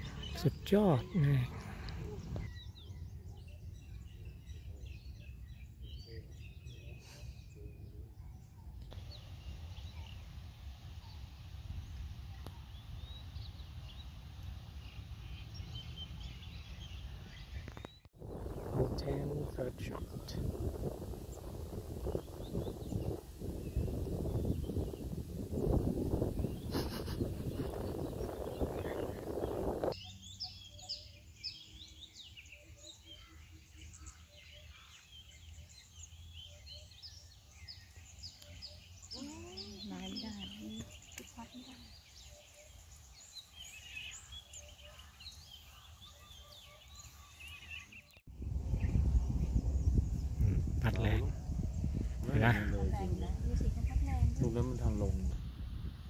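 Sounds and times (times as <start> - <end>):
birds chirping: 0.0 - 55.9
wind rumble on microphone: 14.8 - 30.0, 48.3 - 56.0.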